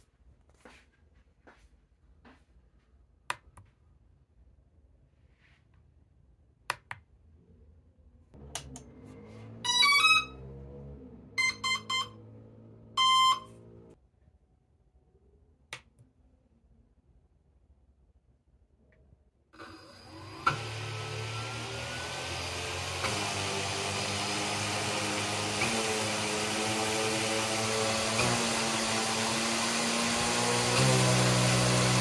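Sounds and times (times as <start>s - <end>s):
rising run of tones: 8.4s - 14.0s, 20.1s - 32.0s
motor controller beeps: 9.6s - 10.5s, 11.4s - 13.8s.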